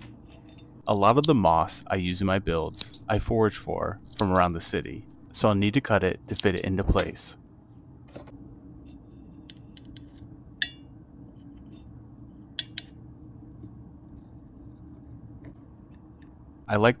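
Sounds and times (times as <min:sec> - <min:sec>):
faint low hum: 0:00.0 - 0:17.0
metallic clicks and scissor snips: 0:02.7 - 0:03.0, 0:04.0 - 0:04.4.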